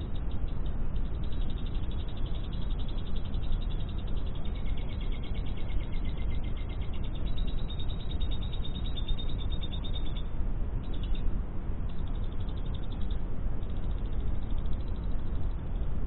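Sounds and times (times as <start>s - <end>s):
bird chattering with high chirps: 0.0s - 11.2s
steady low hum: 0.0s - 16.0s.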